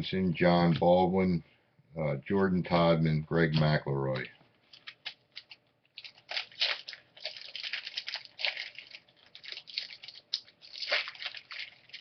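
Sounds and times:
cards rustling: 4.6 - 12.0
foil wrapper crinkling and tearing: 4.7 - 12.0.

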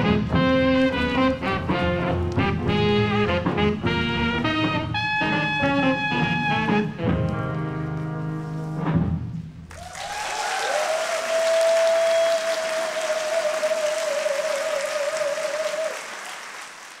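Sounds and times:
swing tune with brass: 0.0 - 9.3
audience applause: 9.7 - 17.0
long held cheer: 9.7 - 17.0.

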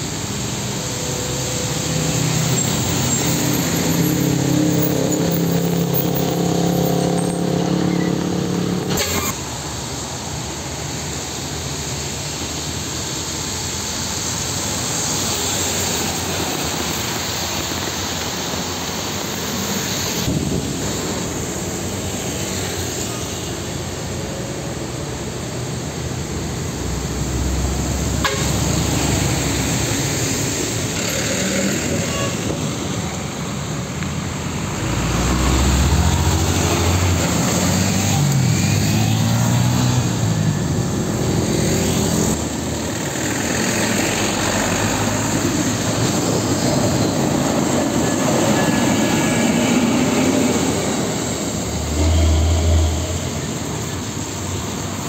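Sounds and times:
road traffic driving past: 0.0 - 55.0
truck diesel engine accelerating: 23.6 - 55.0.

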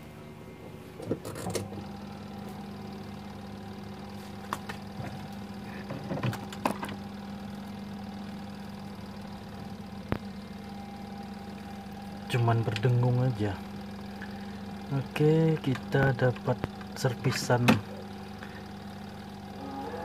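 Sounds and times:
washing machine motor humming: 0.0 - 20.0
knocks and clicks handling machine: 1.0 - 1.9, 4.5 - 7.0, 12.5 - 13.0, 15.5 - 18.0.

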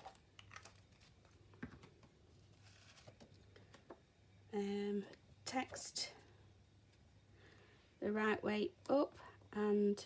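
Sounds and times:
paper rustling and tapping: 0.0 - 4.0
faint low hum: 0.0 - 10.0.

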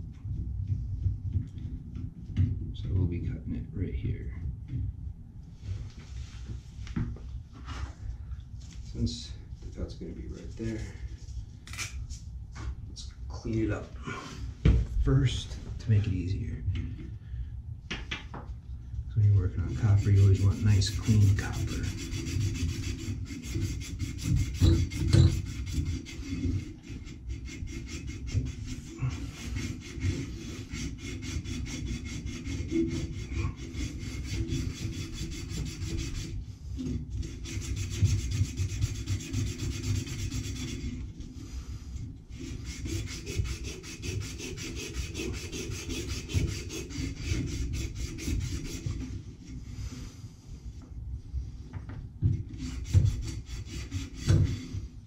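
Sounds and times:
rubbing strokes on metal pipe: 19.3 - 50.2, 52.5 - 55.0.

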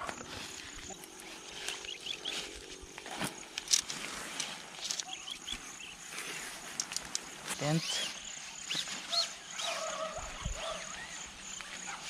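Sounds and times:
tent poles clicking and knocking: 0.0 - 5.7, 6.6 - 7.7
rustling of bag: 0.0 - 10.8
faint insect hiss: 0.0 - 12.0
bird chirps: 5.0 - 6.0.

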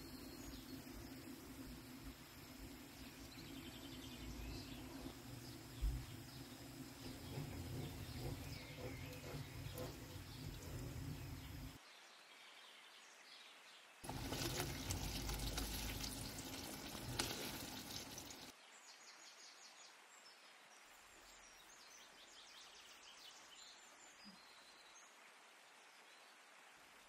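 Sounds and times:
sauce sizzling in a frying pan: 14.0 - 18.5.

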